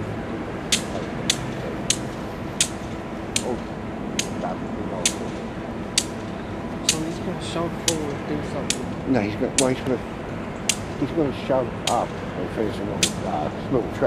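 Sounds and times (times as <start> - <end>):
diesel locomotive idling: 0.0 - 14.0
sharp clicks: 0.7 - 9.0, 11.8 - 12.2, 13.0 - 13.3.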